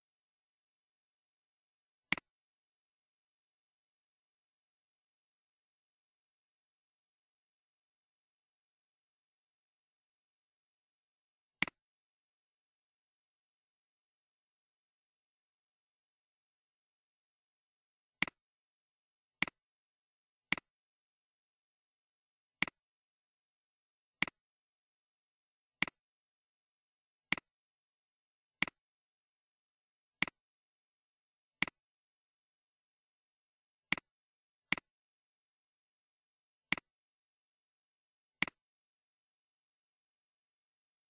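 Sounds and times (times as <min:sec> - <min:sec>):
computer mouse clicks: 0:02.1 - 0:02.4, 0:27.3 - 0:27.5, 0:34.7 - 0:34.9, 0:36.7 - 0:36.9, 0:38.4 - 0:38.6.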